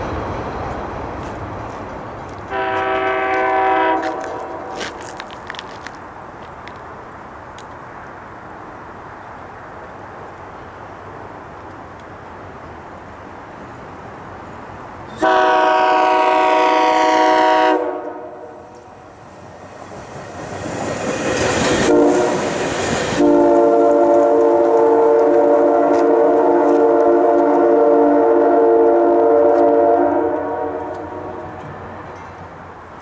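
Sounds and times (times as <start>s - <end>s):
train rushing past: 0.0s - 33.0s
train air horn chord: 2.5s - 4.8s, 15.2s - 18.7s, 21.8s - 22.4s, 23.2s - 31.6s.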